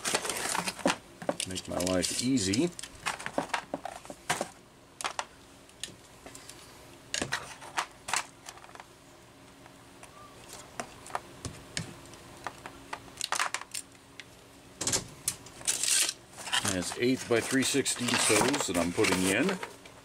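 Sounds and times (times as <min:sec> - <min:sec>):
hands handling tape measure and hose: 0:00.0 - 0:06.6, 0:15.3 - 0:20.0
faint steady hum: 0:00.0 - 0:20.0.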